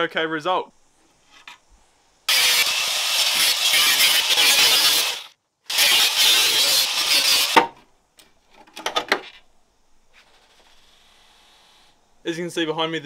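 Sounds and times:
angle grinder cutting metal: 2.3s - 7.6s.

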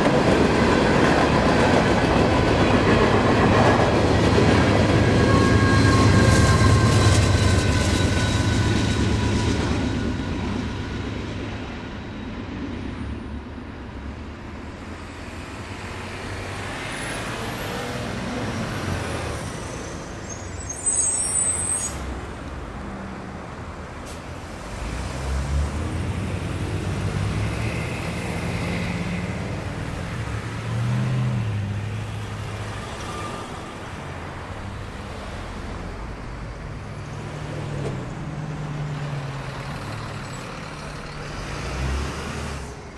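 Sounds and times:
cars and bus accelerating: 0.0s - 42.9s
locomotive rumbling past: 0.0s - 42.9s
air brake hiss: 24.0s - 24.3s.

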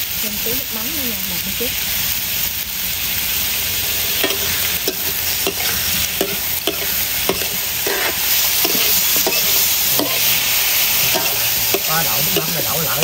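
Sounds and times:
fish sizzling in a pan: 0.0s - 13.0s
utensil scraping a pan: 4.0s - 12.6s.

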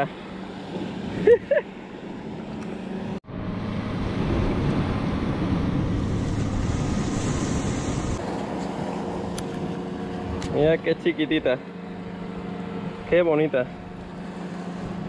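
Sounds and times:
waves washing against rocks: 4.2s - 8.3s.

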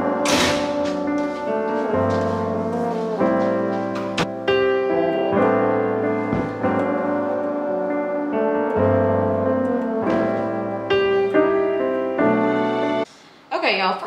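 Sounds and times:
piano chords: 0.0s - 13.1s.

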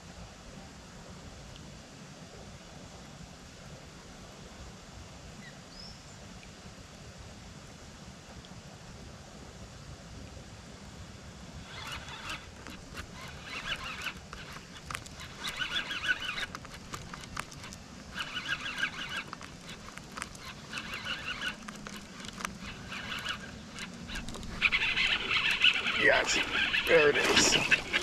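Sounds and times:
fishing reel whirring: 11.5s - 28.0s.

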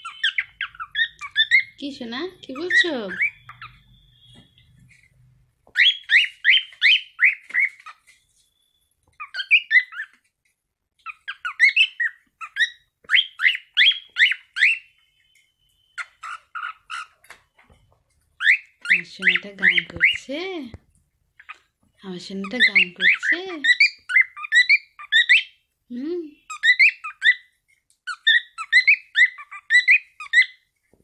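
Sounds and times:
cockatiel whistling: 0.0s - 1.8s, 2.6s - 4.6s, 5.7s - 10.2s, 11.1s - 17.3s, 28.1s - 30.6s.

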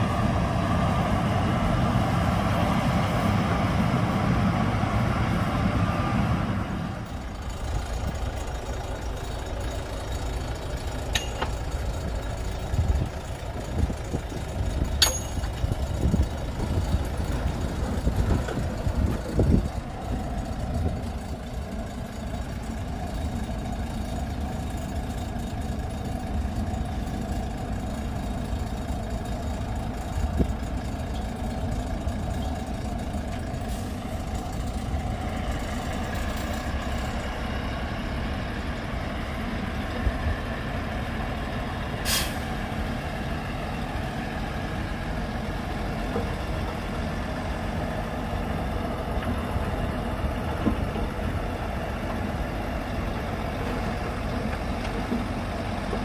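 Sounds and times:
diesel truck engine idling: 0.0s - 56.0s
air brake hiss: 42.0s - 42.5s.

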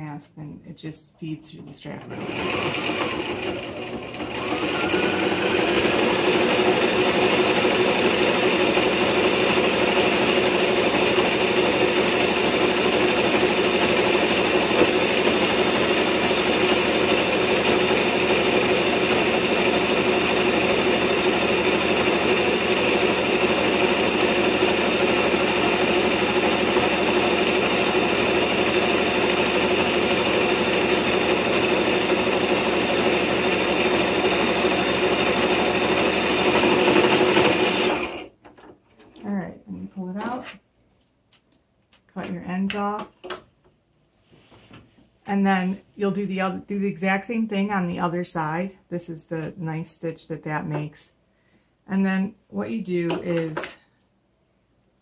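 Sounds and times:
electric sewing machine running: 2.1s - 38.3s.

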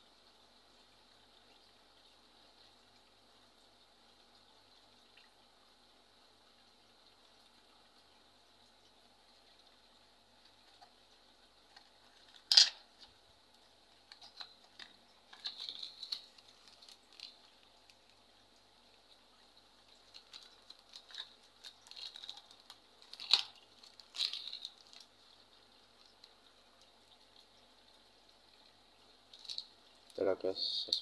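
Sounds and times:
cardboard and plastic packaging crinkling: 14.1s - 17.5s, 20.0s - 25.1s.

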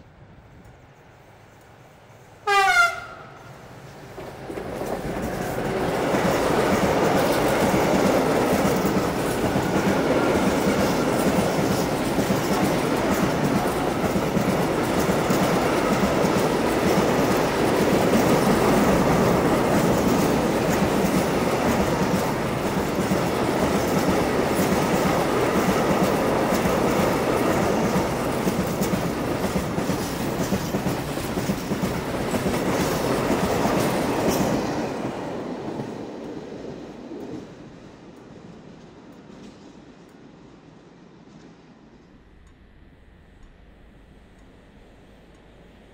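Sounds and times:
freight train rumbling past: 0.0s - 45.9s
train wheels clattering over rails: 4.0s - 40.0s.

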